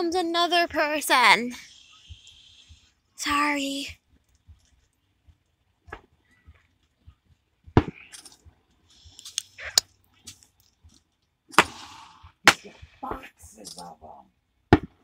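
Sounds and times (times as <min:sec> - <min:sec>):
firecrackers popping: 0:11.4 - 0:13.8.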